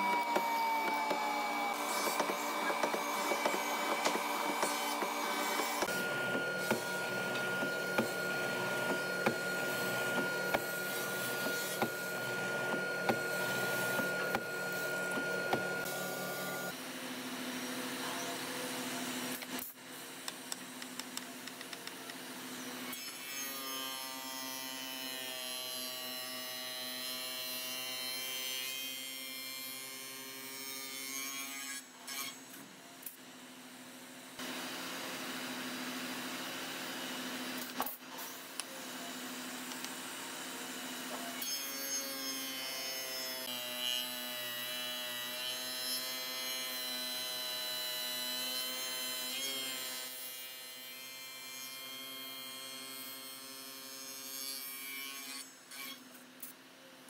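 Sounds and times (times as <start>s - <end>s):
spindle moulder shaping wood: 0.0s - 15.9s
band saw cutting wood: 0.0s - 16.8s.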